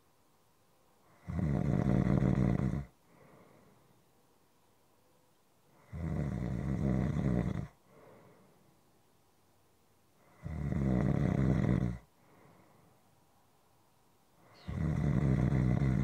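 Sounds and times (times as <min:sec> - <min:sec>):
person snoring: 0:01.1 - 0:02.9, 0:05.8 - 0:07.8, 0:10.3 - 0:12.1, 0:14.5 - 0:16.0
soft breath out: 0:03.0 - 0:04.2, 0:07.8 - 0:08.9, 0:12.1 - 0:13.4.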